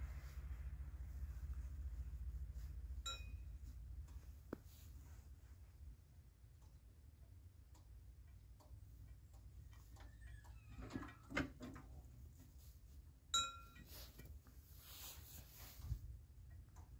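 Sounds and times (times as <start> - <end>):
low rumble: 0.0 - 6.2.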